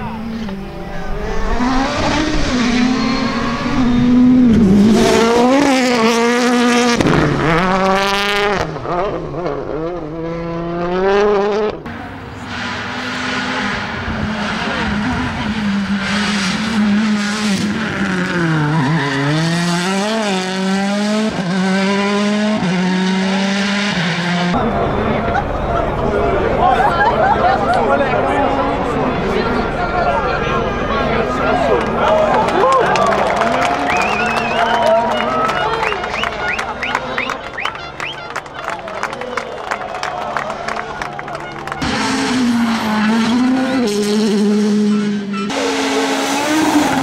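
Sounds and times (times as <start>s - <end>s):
rally car engine revving hard: 0.0s - 25.0s, 41.8s - 47.0s.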